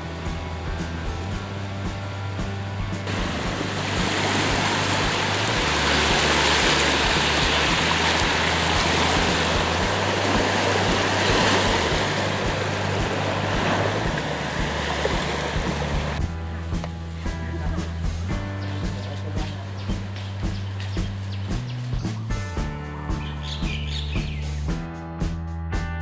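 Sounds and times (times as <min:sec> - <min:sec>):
sea waves breaking on beach: 0:03.0 - 0:16.2.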